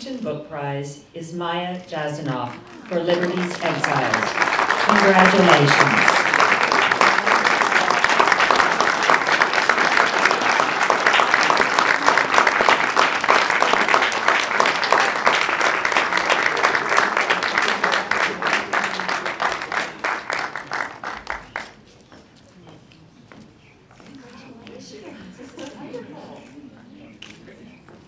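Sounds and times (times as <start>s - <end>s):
audience applauding: 2.5s - 21.9s.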